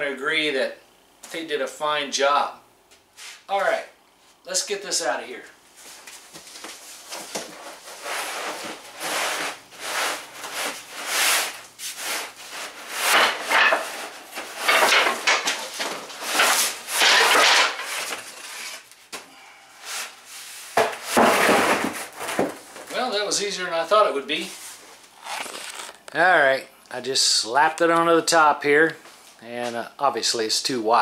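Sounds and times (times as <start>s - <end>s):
wood paneling scraping cardboard box: 6.9s - 18.9s, 19.9s - 22.6s.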